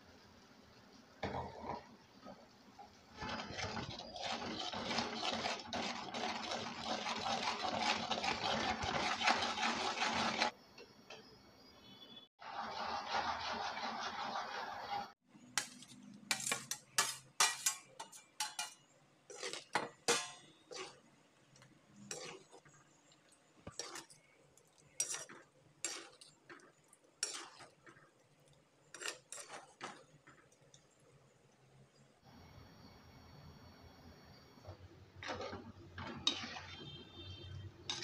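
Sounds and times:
spoon scraping in clay pot: 3.1 - 10.5, 12.7 - 22.9, 23.6 - 28.1, 28.8 - 30.7, 35.2 - 38.0.

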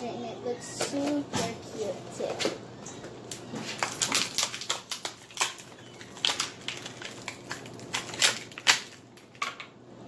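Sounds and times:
plastic wrapping crinkling: 3.3 - 9.6.

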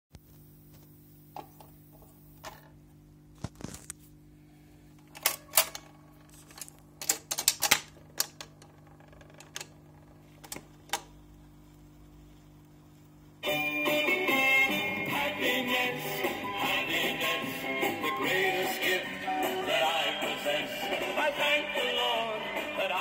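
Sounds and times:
steady low hum: 0.2 - 13.7
record changer mechanical clicks: 5.0 - 8.7, 9.4 - 11.4.

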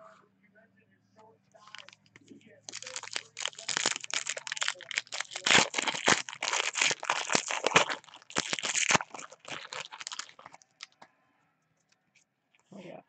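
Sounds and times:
foil wrapper crinkling and tearing: 1.6 - 2.0, 2.7 - 11.0.

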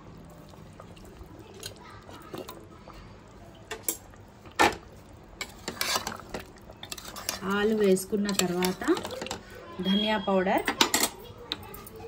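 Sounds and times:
utensils clinking on metal pot: 5.4 - 12.0.

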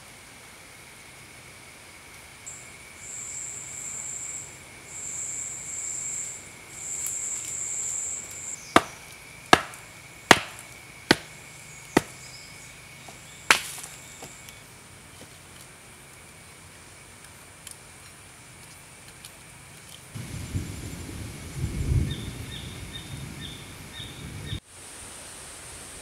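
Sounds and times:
insects buzzing high-pitched: 0.0 - 24.6
steady insect drone: 0.0 - 26.0
sharp knocks on wood: 8.8 - 11.3, 12.0 - 12.2, 13.5 - 13.9.

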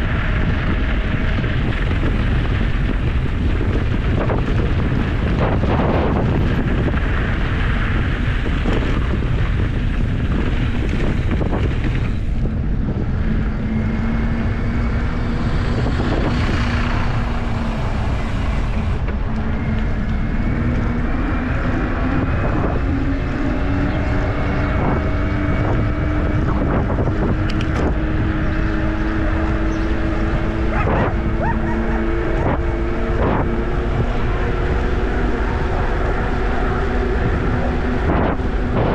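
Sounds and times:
tyres rolling on gravel: 0.0 - 38.9
wind buffeting microphone: 0.0 - 38.9
hum rising in pitch: 12.3 - 38.9.

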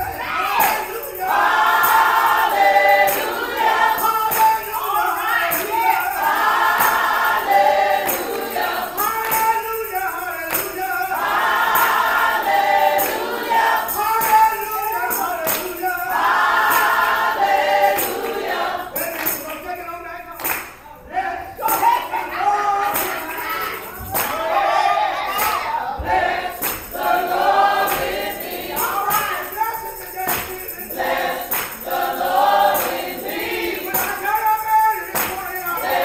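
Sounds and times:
women singing gospel: 0.0 - 19.4, 21.1 - 36.0
percussive beat: 0.0 - 20.8, 21.6 - 22.1, 22.8 - 24.6, 25.3 - 36.0.

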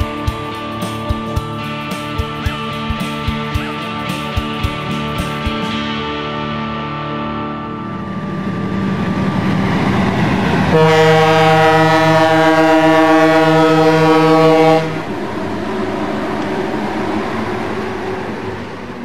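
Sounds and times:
moving train rumble: 0.0 - 19.0
locomotive air horn blast: 10.4 - 15.2.

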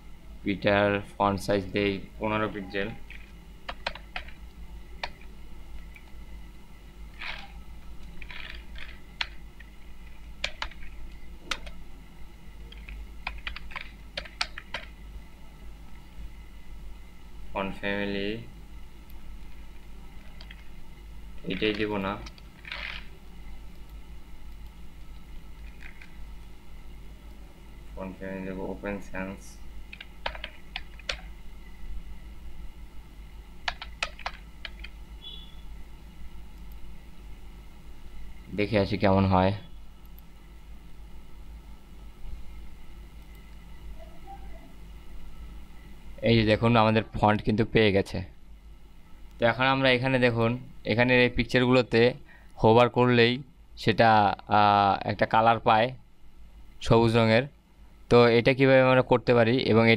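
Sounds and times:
low hum: 0.0 - 46.8
keyboard typing: 2.9 - 4.4, 7.2 - 11.8, 12.7 - 15.0, 29.9 - 31.3, 33.6 - 35.0.

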